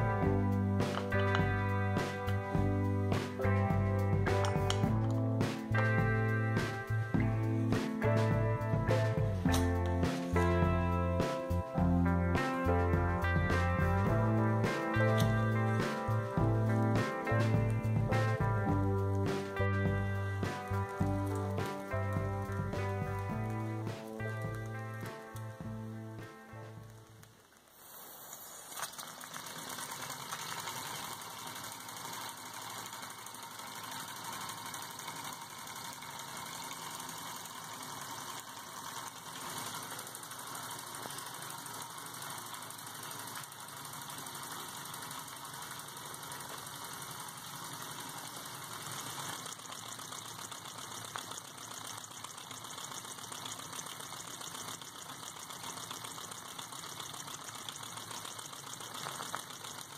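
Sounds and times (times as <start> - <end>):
exhaust steam puffs: 26.8 - 59.9
model steam engine clatter: 28.6 - 59.9.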